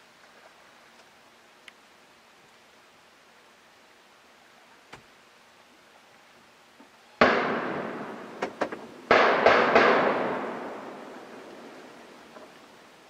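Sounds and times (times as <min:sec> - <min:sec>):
faint sharp clicks: 0:00.9 - 0:01.8
gunshots with echo: 0:07.2 - 0:12.0.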